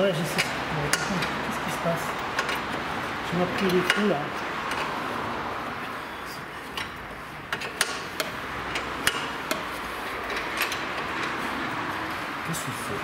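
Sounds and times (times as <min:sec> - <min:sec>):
steady background noise: 0:00.0 - 0:13.0
spanner clicking on metal nut: 0:06.8 - 0:11.4.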